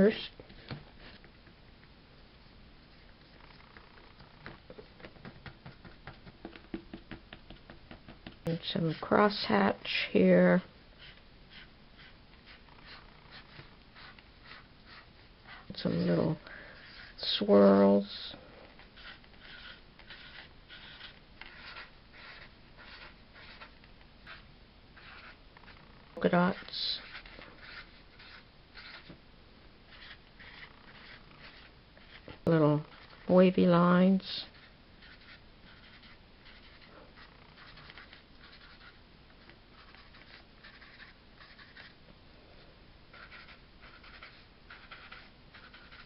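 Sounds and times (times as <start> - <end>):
marker squeaking on paper: 3.2 - 6.2, 11.0 - 18.2, 18.8 - 29.2, 29.9 - 33.4, 34.4 - 42.0, 43.1 - 46.0.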